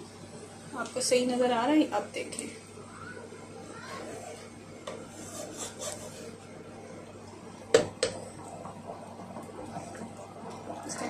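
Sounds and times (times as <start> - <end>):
curry simmering: 2.6 - 11.0
wooden spatula scraping a pot: 5.1 - 6.4.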